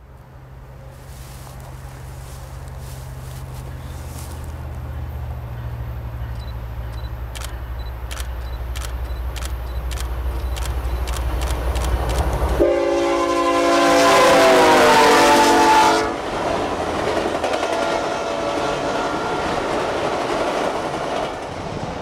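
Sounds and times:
diesel locomotive engine hum: 0.0 - 22.0
sharp ticks from track: 6.3 - 12.6
locomotive horn chord: 12.6 - 16.3, 17.4 - 19.5.

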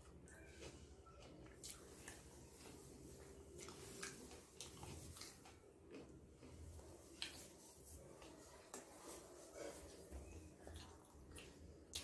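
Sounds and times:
person chewing food: 0.0 - 12.0
wet mouth clicks: 10.8 - 12.0.

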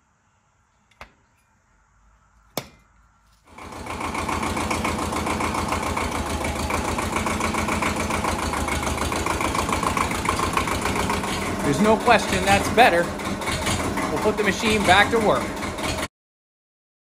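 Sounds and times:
diesel tractor engine idling: 3.5 - 16.1.

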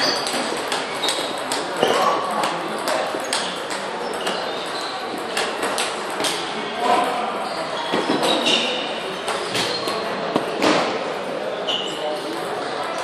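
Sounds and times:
table tennis balls clicking: 0.0 - 6.4.

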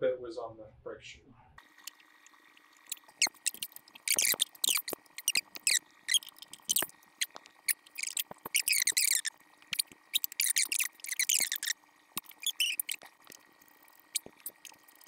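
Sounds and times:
metallic scrapes and squeaks: 2.9 - 13.3.

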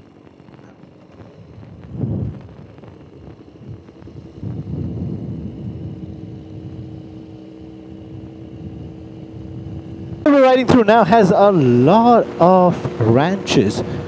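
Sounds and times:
motorcycle engine running: 0.0 - 14.0
wind noise on microphone: 0.2 - 10.9.

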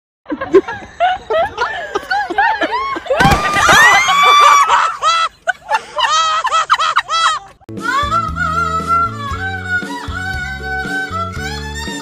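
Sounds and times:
thud: 3.2 - 4.0.

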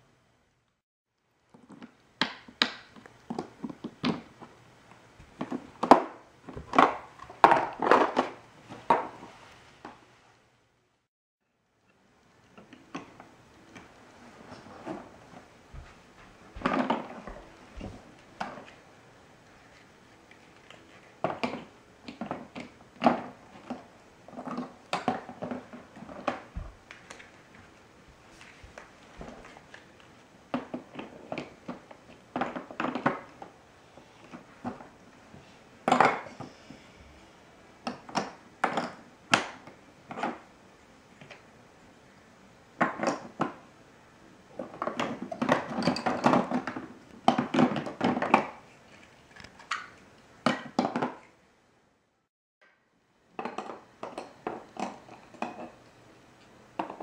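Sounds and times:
plastic building blocks clattering: 5.4 - 9.2, 16.6 - 18.8, 20.4 - 27.4, 29.2 - 33.5, 44.5 - 51.3.

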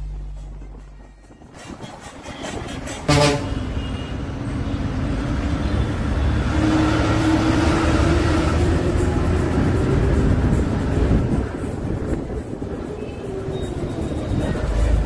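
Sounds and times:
bus engine and road noise: 0.0 - 15.0
short horn toot: 3.0 - 4.1.

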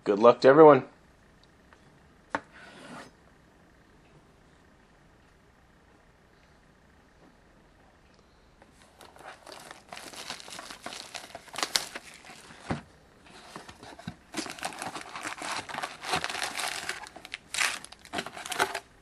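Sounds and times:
plastic wrapping crinkling: 8.7 - 19.0
plastic wrap tearing: 8.9 - 12.7, 13.5 - 18.9.

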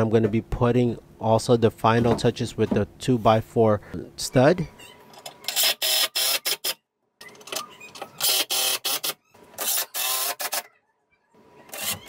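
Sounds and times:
cordless drill driving screws: 5.5 - 6.8, 8.2 - 10.6.

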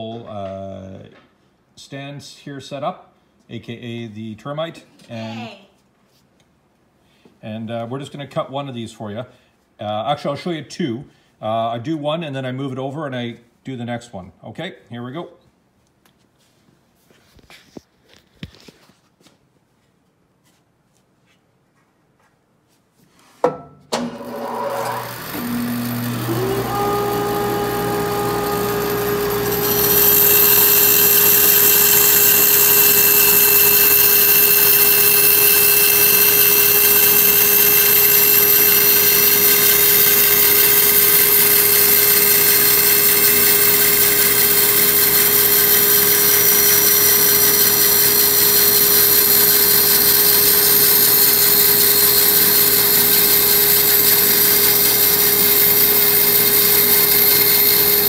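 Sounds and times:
bandsaw cutting wood: 24.0 - 58.0.

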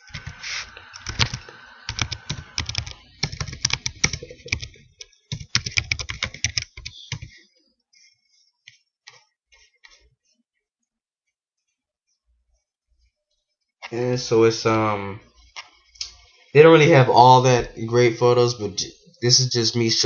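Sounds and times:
typing on computer keyboard: 0.1 - 0.4, 1.0 - 7.4.

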